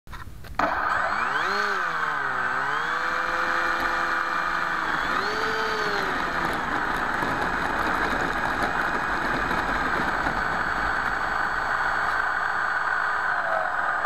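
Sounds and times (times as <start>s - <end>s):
electric motor propeller whine: 0.6s - 14.0s
steady rushing hiss: 3.4s - 14.0s.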